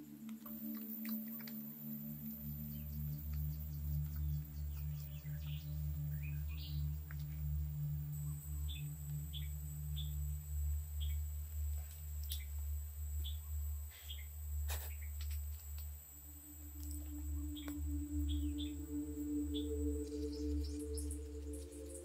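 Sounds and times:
steady low hum: 0.0s - 22.0s
thin high steady tone: 0.0s - 22.0s
high bird chirps: 13.2s - 14.3s, 16.4s - 22.0s.

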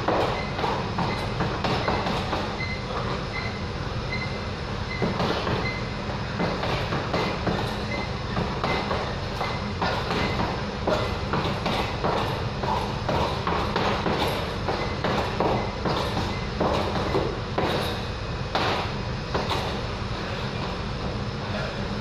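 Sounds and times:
punches on heavy bag: 6.4s - 19.8s.

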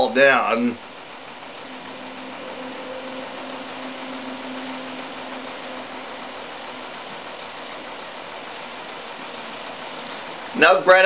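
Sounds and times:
recording hiss: 1.3s - 10.7s
faint low hum: 1.4s - 9.5s.

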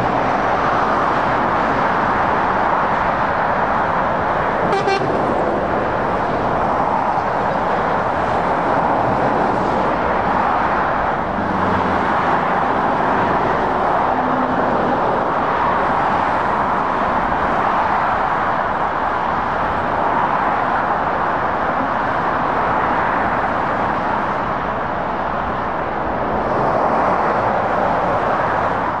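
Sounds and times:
motorway traffic rushing: 0.0s - 29.0s.

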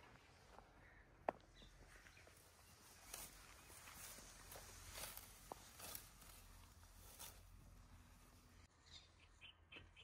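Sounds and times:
plants rustling being picked: 1.8s - 8.4s.

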